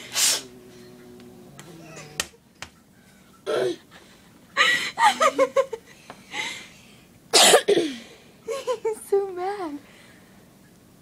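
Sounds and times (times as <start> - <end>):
person giggling: 4.6 - 5.9.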